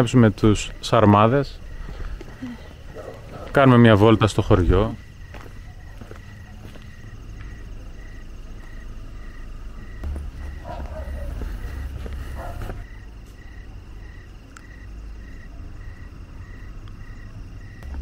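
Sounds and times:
low microphone rumble: 9.8s - 12.9s
steady trill: 10.0s - 12.9s.

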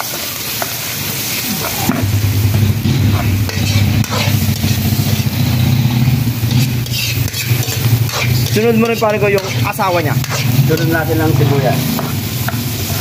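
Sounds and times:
garlic sizzling in hot oil: 0.0s - 13.0s
metal ladle scraping wok: 0.0s - 13.0s
low motor drone: 1.9s - 6.9s.

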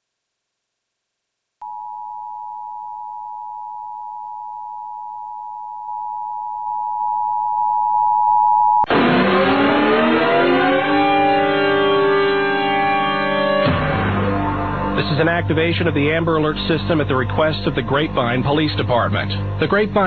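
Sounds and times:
electronic chord sliding down: 8.9s - 16.5s.

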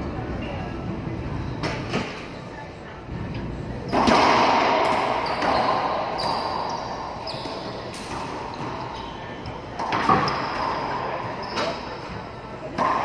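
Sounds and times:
racquetball hit echoing: 3.9s - 13.0s
sneakers squeaking on hardwood: 4.8s - 13.0s.

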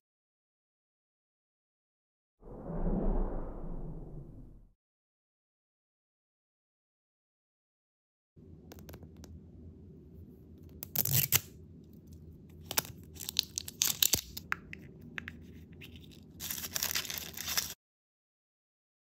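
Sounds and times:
plastic wrapper tearing and crinkling: 10.8s - 11.5s, 12.6s - 14.5s, 15.9s - 17.8s.

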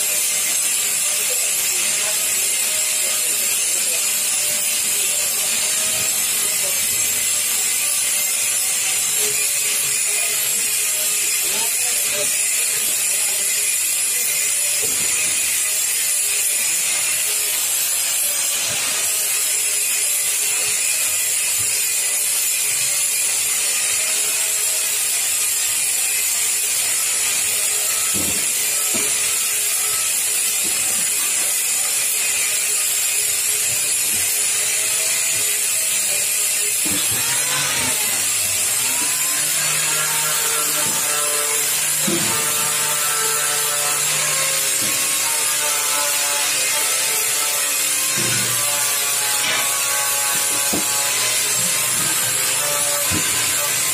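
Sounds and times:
angle grinder on steel sheet: 0.0s - 53.9s.

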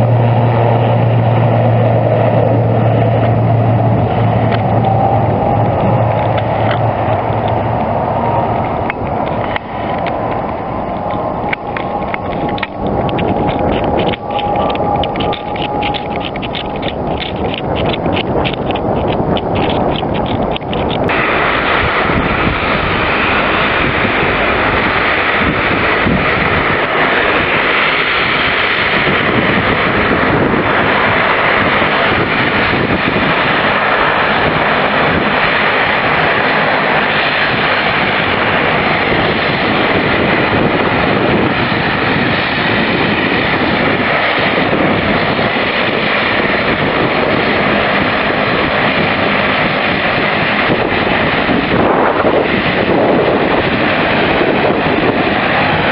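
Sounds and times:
turboprop engines and propellers: 0.0s - 55.9s.

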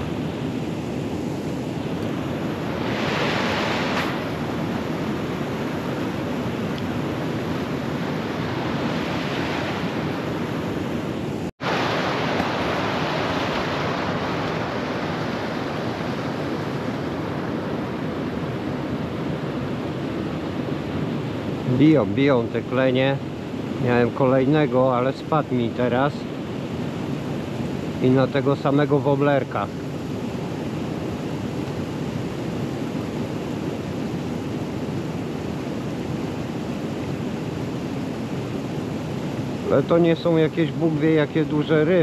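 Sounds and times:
wind on microphone: 0.0s - 28.8s.

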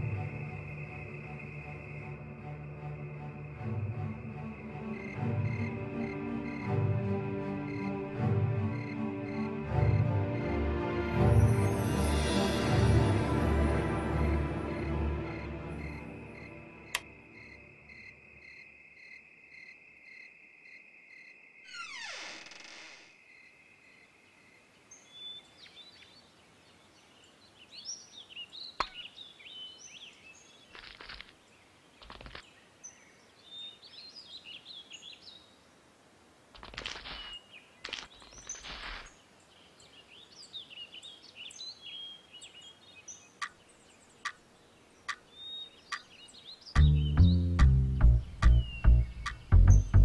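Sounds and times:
birds chirping and singing: 37.0s - 50.0s.

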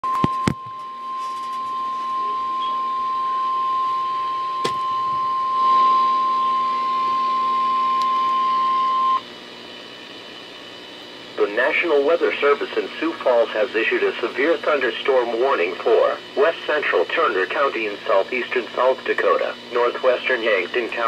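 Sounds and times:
steady alarm tone: 0.0s - 9.3s.

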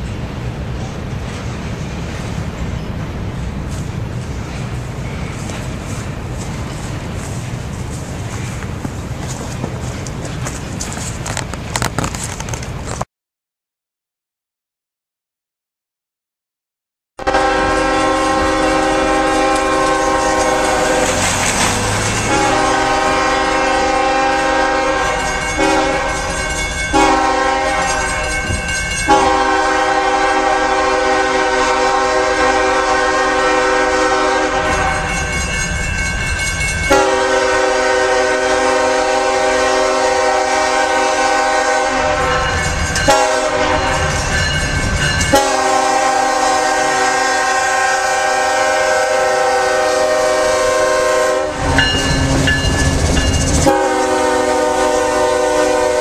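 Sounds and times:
low rumble of train: 0.0s - 13.0s, 17.2s - 56.0s
locomotive horn blasts: 17.2s - 21.2s, 22.2s - 35.3s, 36.9s - 44.2s, 45.3s - 52.6s, 53.6s - 56.0s.

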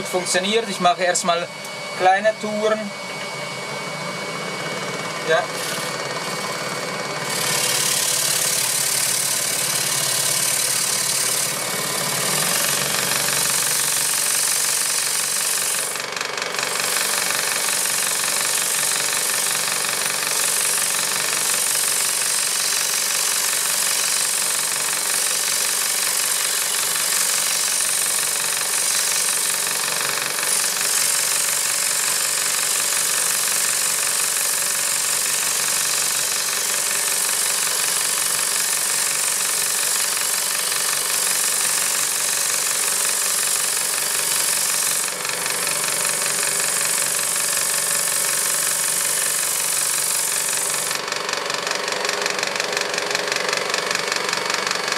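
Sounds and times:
scroll saw running: 0.0s - 54.9s
sandpaper rubbing on wood: 41.2s - 45.1s.

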